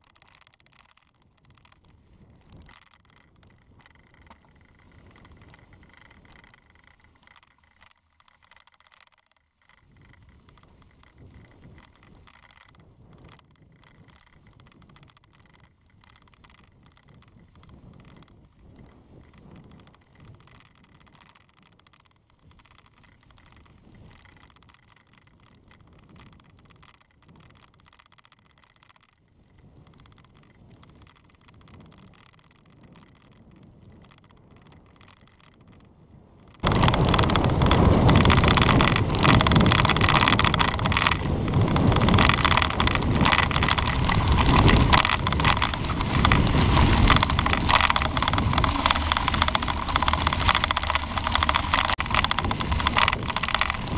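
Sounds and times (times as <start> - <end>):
bicycle tyres crunching on gravel: 0.0 - 8.8, 36.6 - 53.9
wind buffeting microphone: 35.6 - 53.9
muffled road noise: 36.6 - 53.9.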